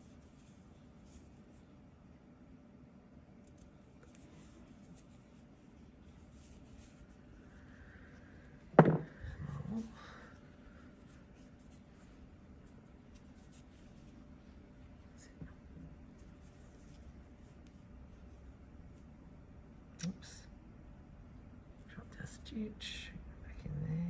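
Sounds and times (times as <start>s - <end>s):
rustling of crochet yarn: 0.0s - 1.8s, 3.4s - 19.4s
sharp thump: 8.8s - 9.1s.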